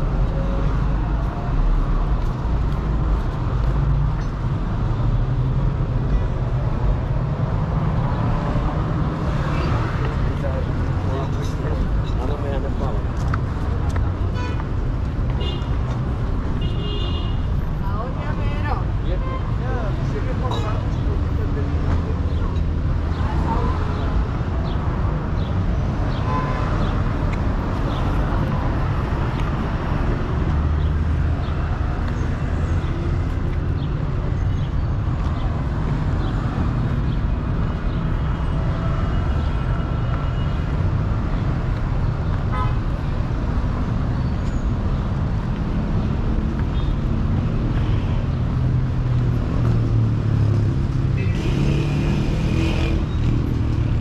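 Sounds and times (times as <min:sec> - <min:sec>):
cars driving past: 0:44.7 - 0:54.0.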